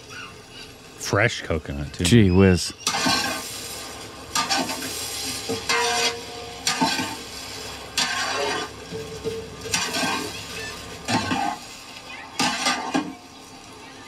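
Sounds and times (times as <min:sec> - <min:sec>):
frying sizzle: 0:00.0 - 0:14.0
ladle scraping metal pot: 0:04.3 - 0:07.2, 0:07.9 - 0:11.6, 0:12.4 - 0:13.1.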